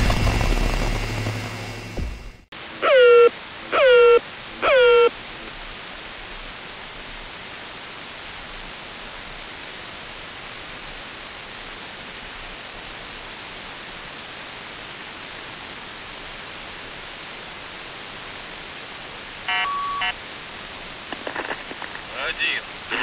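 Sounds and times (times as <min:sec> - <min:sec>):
radio static hiss: 0:00.0 - 0:23.0
horn-like buzz of stacked tones: 0:02.8 - 0:05.2, 0:19.5 - 0:20.2.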